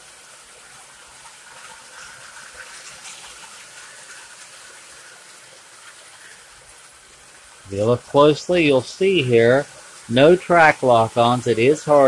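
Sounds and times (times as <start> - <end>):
model train wheels rolling: 0.0 - 12.0.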